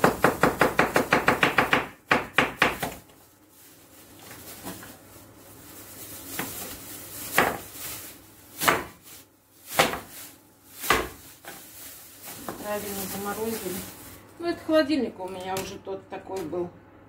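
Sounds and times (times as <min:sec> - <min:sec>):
frozen pieces crackling: 0:03.0 - 0:14.5
plastic bag crinkling: 0:03.0 - 0:14.6.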